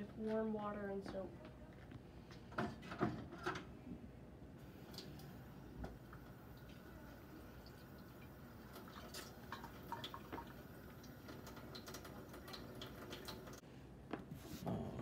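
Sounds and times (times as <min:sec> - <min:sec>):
tap water running into sink: 0:04.6 - 0:13.6.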